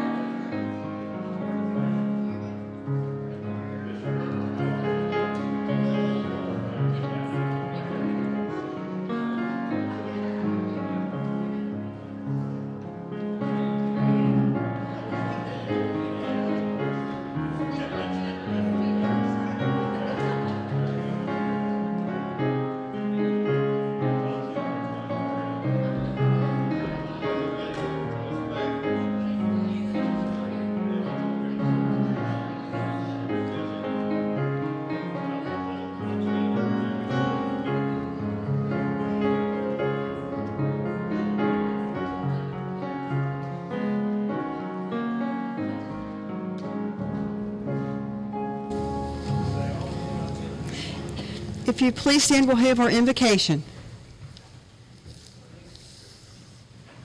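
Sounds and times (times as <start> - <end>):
live piano music: 0.0 - 53.9
people talking: 48.7 - 53.7.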